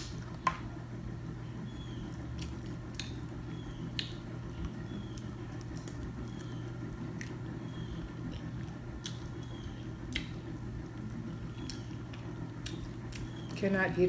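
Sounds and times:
steady low hum: 0:00.0 - 0:14.0
chewing: 0:02.3 - 0:13.6
wet lip-smacking: 0:10.0 - 0:10.4.

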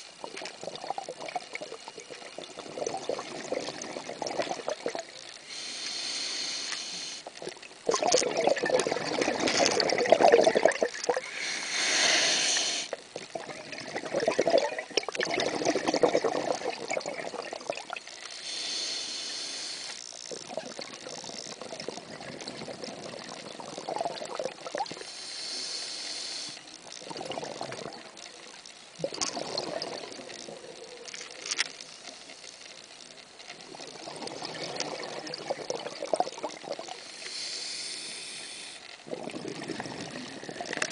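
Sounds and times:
rush of bubbles: 0:00.2 - 0:05.2, 0:07.8 - 0:12.2, 0:13.2 - 0:18.1, 0:20.4 - 0:25.0, 0:27.0 - 0:28.2, 0:29.0 - 0:30.8, 0:33.6 - 0:37.1, 0:39.0 - 0:40.9
regulator hiss on inhale: 0:05.2 - 0:07.4, 0:11.2 - 0:13.0, 0:18.1 - 0:20.3, 0:24.9 - 0:26.9, 0:36.8 - 0:39.1.

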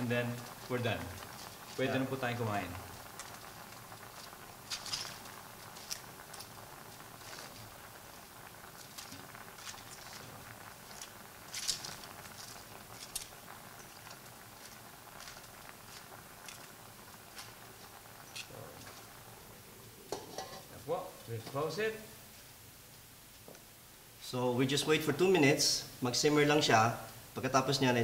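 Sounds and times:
soft clicks and crackles: 0:00.0 - 0:01.8, 0:02.8 - 0:19.3
leaves rustling and crunching: 0:00.0 - 0:19.2.

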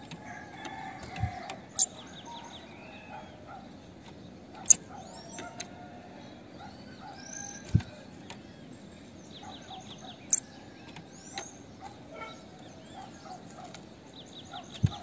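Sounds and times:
bird high chirps: 0:01.7 - 0:03.6, 0:04.6 - 0:05.6, 0:06.7 - 0:10.6.

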